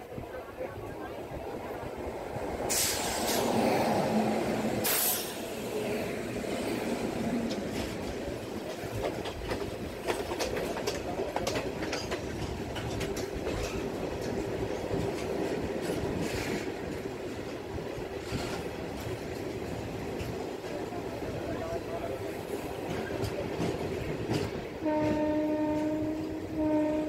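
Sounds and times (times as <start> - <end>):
electric locomotives rushing past: 0.0 - 27.0
wheels clicking over rail joints: 7.2 - 27.0
wagons rumbling and clattering: 7.4 - 25.2.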